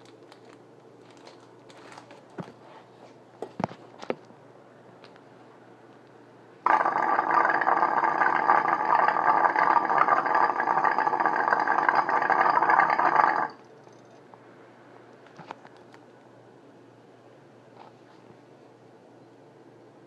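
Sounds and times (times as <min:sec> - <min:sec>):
water bubbling in a pipe: 0:06.7 - 0:13.6.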